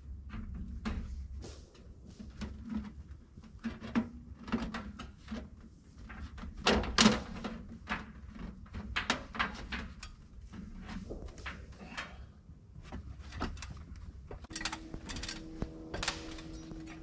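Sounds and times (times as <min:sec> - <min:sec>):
metal stovepipe clanking and scraping: 0:13.2 - 0:17.0.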